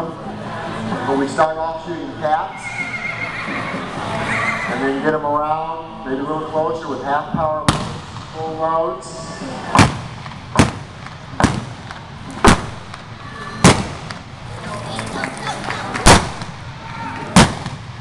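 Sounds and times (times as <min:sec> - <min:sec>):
revolver shots in indoor arena: 0:07.6 - 0:08.6, 0:09.6 - 0:14.4, 0:16.0 - 0:18.0.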